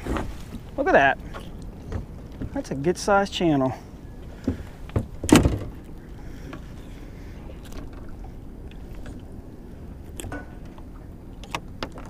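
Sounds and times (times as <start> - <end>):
wind and water rushing: 0.0 - 12.0
fish thumping on boat: 4.3 - 6.7.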